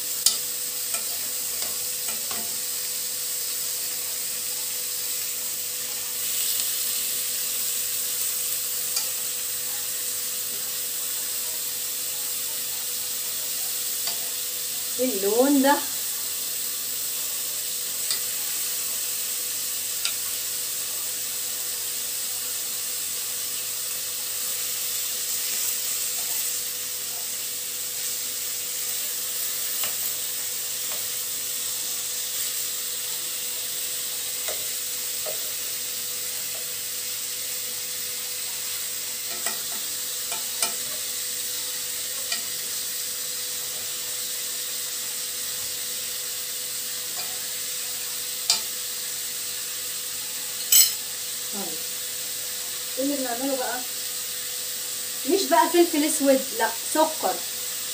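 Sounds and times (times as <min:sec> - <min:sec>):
meat sizzling in a pot: 0:00.0 - 0:57.9
metal spoon clinking on pot: 0:50.6 - 0:51.0.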